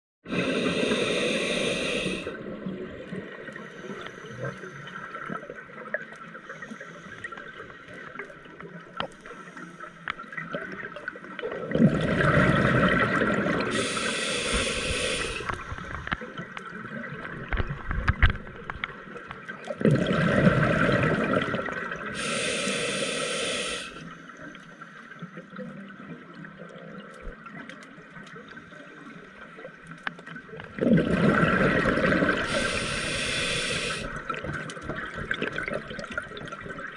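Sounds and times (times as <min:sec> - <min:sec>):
diver breathing through regulator: 0:00.3 - 0:02.4, 0:13.5 - 0:16.1, 0:22.1 - 0:24.2, 0:32.0 - 0:34.3
exhaled bubbles gushing: 0:10.4 - 0:16.1, 0:19.7 - 0:22.3, 0:30.6 - 0:36.9.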